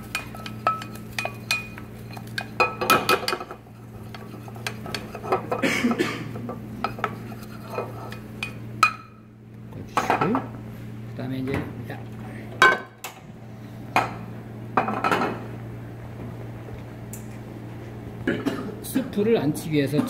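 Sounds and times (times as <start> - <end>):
steady low hum: 0.0 - 20.0
wooden spoon scraping a pot: 3.5 - 5.6, 6.8 - 8.6.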